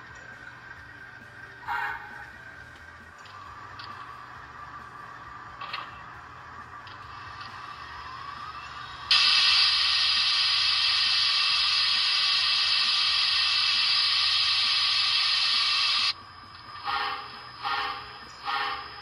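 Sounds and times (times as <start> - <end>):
loud steam hiss from speaker: 9.1 - 16.1
short steam chuffs: 9.1 - 16.1, 16.8 - 19.0.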